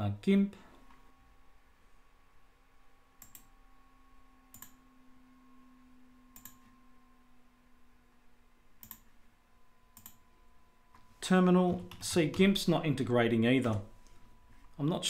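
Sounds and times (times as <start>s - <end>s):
faint steady hum: 0.0s - 15.0s
computer mouse clicks: 3.2s - 3.5s, 4.5s - 4.8s, 6.4s - 6.7s, 8.8s - 9.1s, 10.0s - 10.2s.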